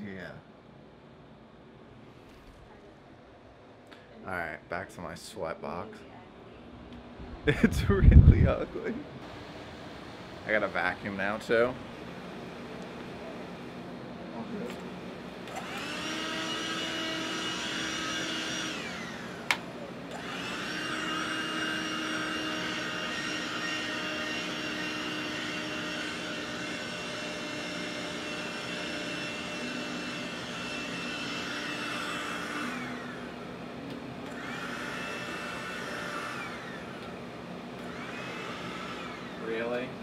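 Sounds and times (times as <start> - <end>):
handheld vacuum motor whine: 15.4 - 39.9.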